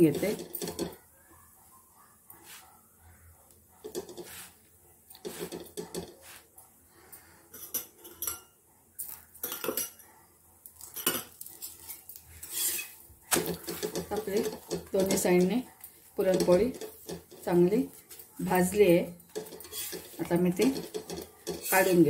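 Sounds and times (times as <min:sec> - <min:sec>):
utensils clinking on griddle: 0:00.0 - 0:01.0, 0:03.8 - 0:04.4, 0:05.2 - 0:06.4, 0:07.5 - 0:08.5, 0:09.4 - 0:10.0, 0:10.8 - 0:15.6, 0:16.2 - 0:22.0
spatula scraping under flatbread: 0:04.0 - 0:04.6, 0:05.2 - 0:06.5, 0:11.6 - 0:15.5, 0:19.2 - 0:22.0.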